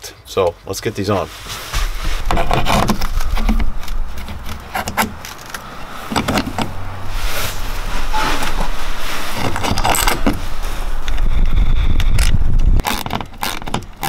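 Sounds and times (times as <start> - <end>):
low steady rumble: 1.3 - 12.8
metal latch clicks and rattles: 2.7 - 6.7, 9.4 - 10.4.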